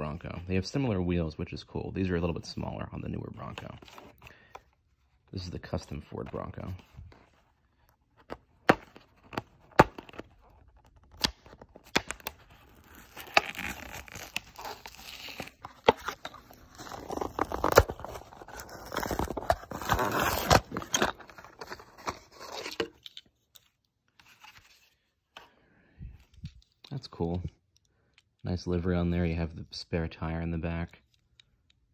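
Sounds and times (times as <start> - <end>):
cardboard tearing: 8.2 - 23.0
plastic crinkling: 8.2 - 23.3.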